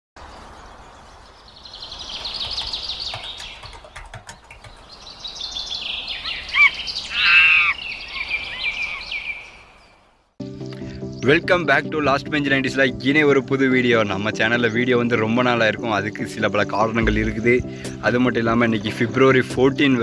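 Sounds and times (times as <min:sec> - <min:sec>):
birds chirping in fast trills: 0:00.2 - 0:20.0
loud bird call: 0:01.7 - 0:10.0.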